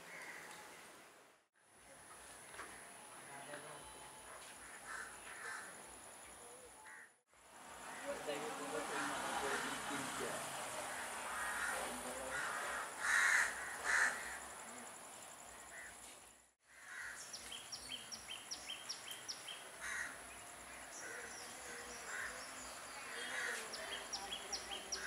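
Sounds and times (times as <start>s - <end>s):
crows cawing: 0.0s - 0.6s, 4.6s - 5.8s, 6.8s - 7.1s, 7.8s - 10.2s, 10.8s - 14.5s, 15.7s - 16.0s, 16.6s - 17.3s, 19.8s - 23.9s
high insect drone: 7.4s - 25.0s.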